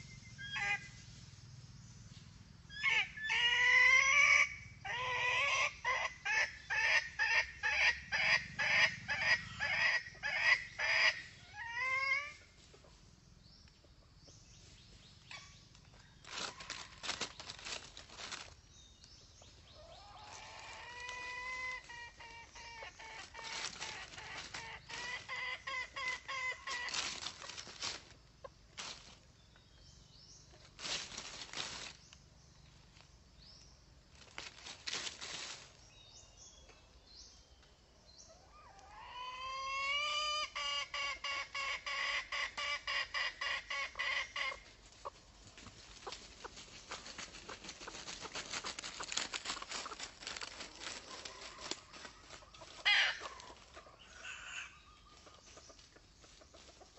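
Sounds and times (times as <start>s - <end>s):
junglefowl clucking and cackling: 0.0s - 1.0s, 2.7s - 13.0s, 16.2s - 18.6s, 19.7s - 29.1s, 38.3s - 56.9s.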